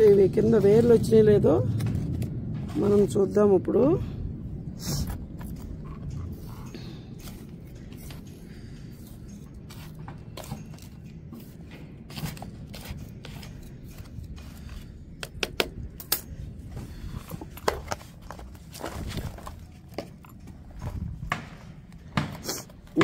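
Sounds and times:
trowel scraping through soil: 0:09.0 - 0:15.0.

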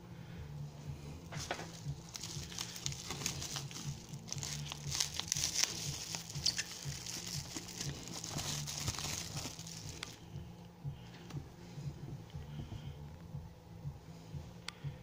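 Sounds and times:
bubble wrap crinkling: 0:01.3 - 0:10.3
masking tape being peeled: 0:01.4 - 0:10.2.

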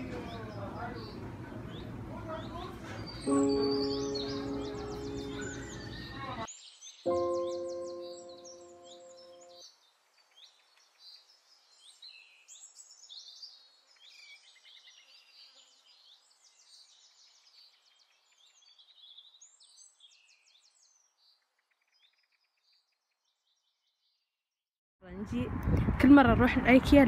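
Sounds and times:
small birds chirping and trilling: 0:00.0 - 0:24.4.

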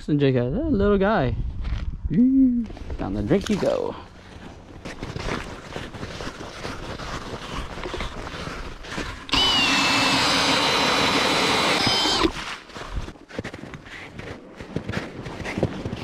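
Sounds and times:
shuffling and knocks on ice: 0:04.8 - 0:09.3, 0:12.3 - 0:16.0
power ice auger drilling: 0:06.5 - 0:12.8.

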